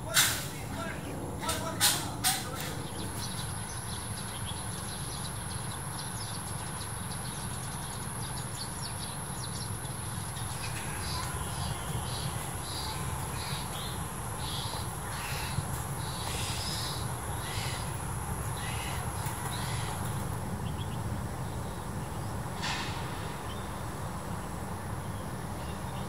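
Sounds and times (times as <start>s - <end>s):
sparrows chirping: 0.0s - 26.0s
steady low rumble: 0.0s - 26.0s
repeating bird call: 10.5s - 20.2s.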